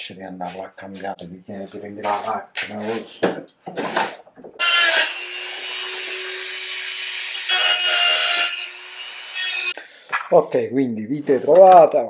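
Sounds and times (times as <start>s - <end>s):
power tool grinding metal: 4.6s - 9.8s.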